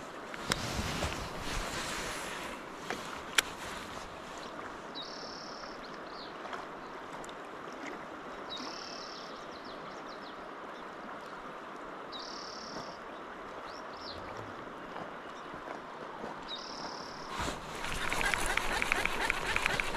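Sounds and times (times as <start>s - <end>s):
river flowing: 0.0s - 9.2s, 14.6s - 19.9s
bird calling: 17.3s - 19.9s.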